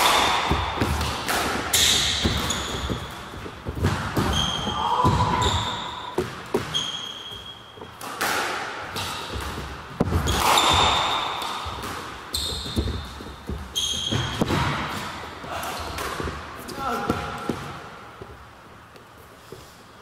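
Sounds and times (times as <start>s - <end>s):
squash ball knocking: 0.0s - 6.8s
shoes squeaking on wooden floor: 1.7s - 8.0s, 9.0s - 18.5s.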